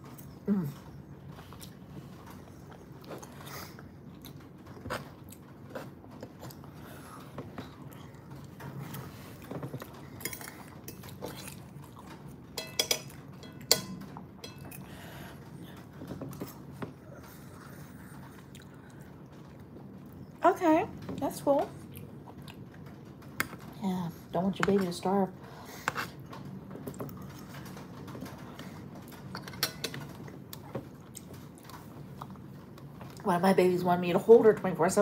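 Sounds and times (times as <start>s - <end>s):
person chewing: 0.1s - 12.4s, 15.6s - 20.4s, 26.8s - 33.2s.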